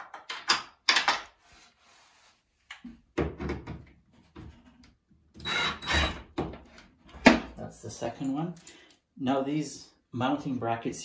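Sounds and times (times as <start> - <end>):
cordless drill driving screw: 5.4 - 6.2.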